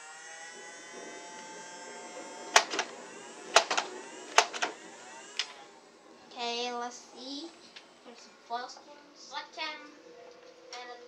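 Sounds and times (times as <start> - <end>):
flywheel motors whining: 0.0 - 6.3
toy blaster shots: 2.4 - 5.6.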